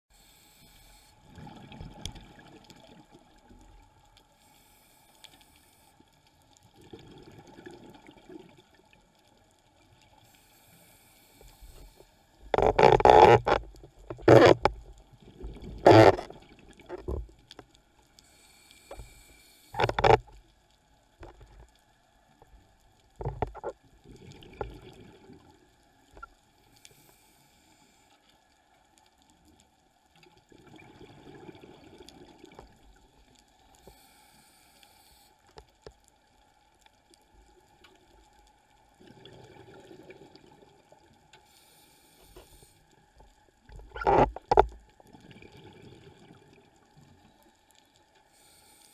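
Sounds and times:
regulator inhalation hisses: 0.1s - 1.2s, 10.3s - 12.1s, 18.2s - 19.8s, 33.8s - 35.5s, 41.5s - 42.8s, 48.3s - 48.9s.

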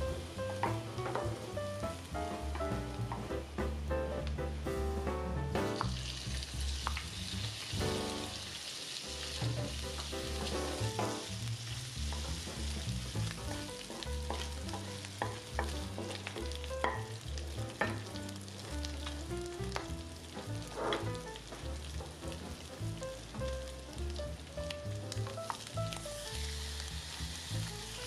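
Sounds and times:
meat sizzling in hot oil: 0.0s - 4.7s, 5.5s - 28.0s
wooden spatula scraping a wok: 11.6s - 18.7s, 19.8s - 22.8s
knocks against the pan: 13.9s - 17.1s, 17.8s - 18.2s.

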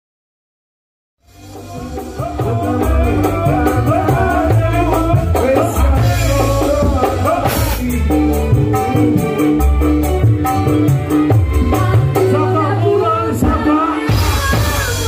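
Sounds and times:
live band playing: 1.2s - 15.0s.

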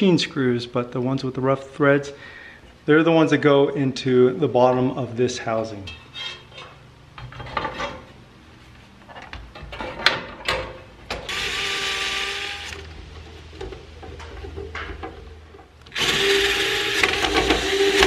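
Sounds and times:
cordless drill driving screws: 11.3s - 12.9s, 15.9s - 18.0s.

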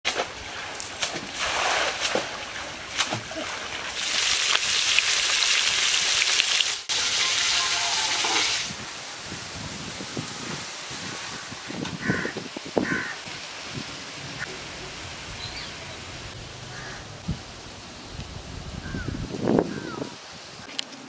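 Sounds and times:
food frying in hot oil: 4.0s - 8.8s.

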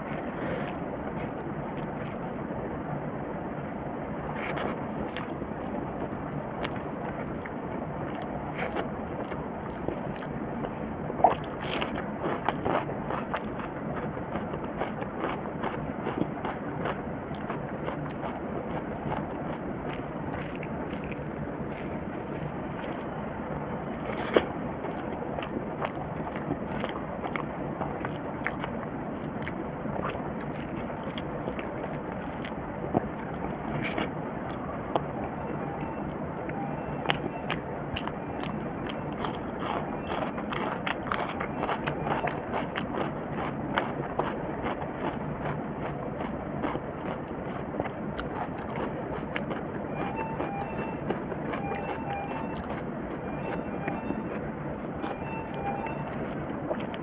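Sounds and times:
wet squishing and scraping: 0.0s - 2.3s, 24.0s - 35.0s
steady background noise: 0.0s - 57.0s.

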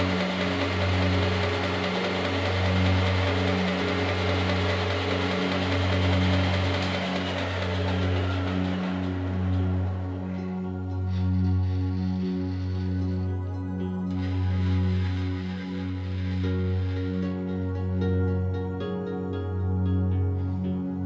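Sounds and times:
milling machine spindle running: 0.0s - 13.2s
ambient background music: 0.0s - 21.0s.

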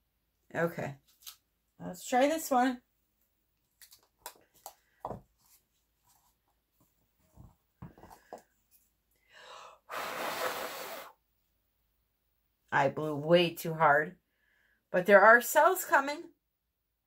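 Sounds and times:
hard breath blowing: 9.2s - 11.2s.

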